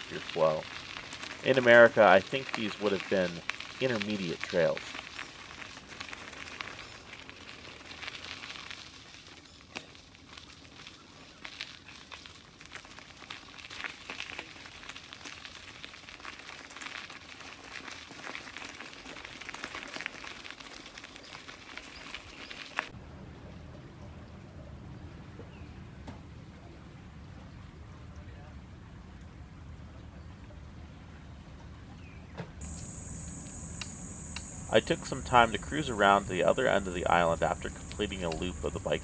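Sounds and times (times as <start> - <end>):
bike tyres crackling over grit: 0.0 - 22.9, 32.6 - 39.0
low rumble of wind and water: 22.9 - 39.0.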